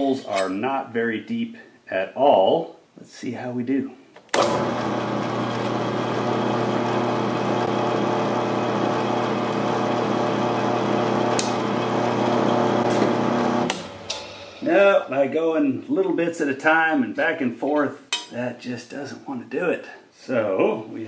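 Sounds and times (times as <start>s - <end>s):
drill press running: 4.3s - 14.6s.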